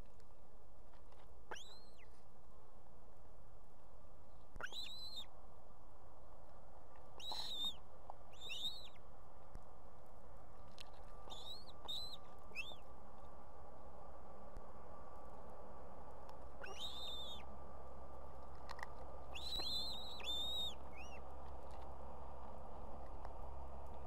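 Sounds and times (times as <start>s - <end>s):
steady background hiss: 0.0s - 24.0s
ospreys whistled calls: 1.5s - 2.1s, 4.6s - 5.3s, 7.2s - 9.0s, 11.3s - 12.8s, 16.6s - 17.4s, 19.3s - 21.2s.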